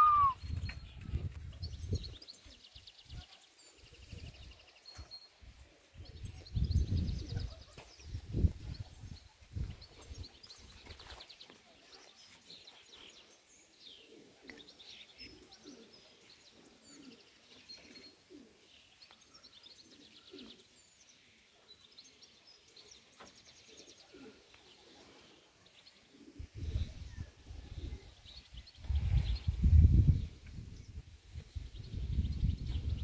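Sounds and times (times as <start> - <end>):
small birds chirping and trilling: 0.0 - 33.0
pigeons cooing: 13.9 - 18.8, 19.4 - 20.8, 23.6 - 28.3.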